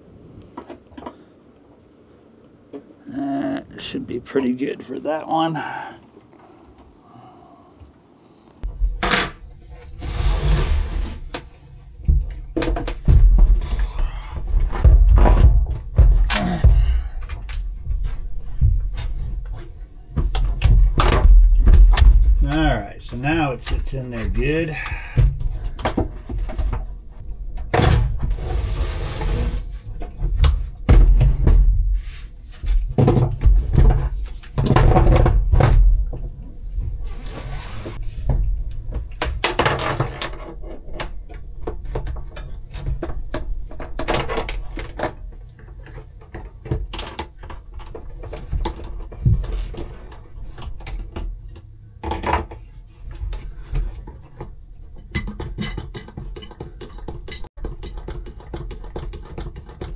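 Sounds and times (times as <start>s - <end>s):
short scraping noises: 9.7s - 11.3s, 28.3s - 29.8s, 37.0s - 38.2s
batteries clunking and knocking: 38.3s - 59.9s.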